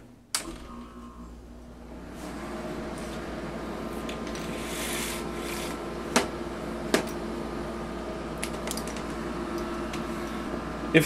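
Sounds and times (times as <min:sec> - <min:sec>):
air conditioner humming: 0:00.0 - 0:11.0.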